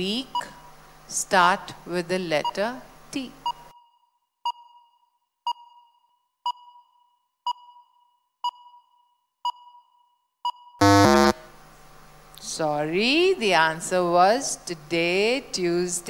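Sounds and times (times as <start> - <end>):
countdown timer beeping: 10.8 - 11.4
loud low buzzer: 10.8 - 11.6.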